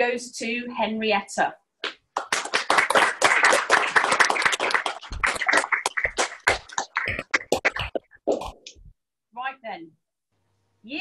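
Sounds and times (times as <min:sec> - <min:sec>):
group clapping: 0:01.8 - 0:08.8.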